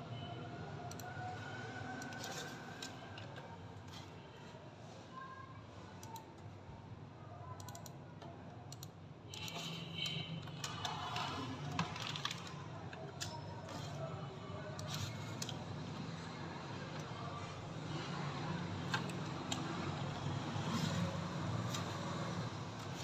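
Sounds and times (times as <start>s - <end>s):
mouse and keyboard clicks: 18.9s - 19.9s.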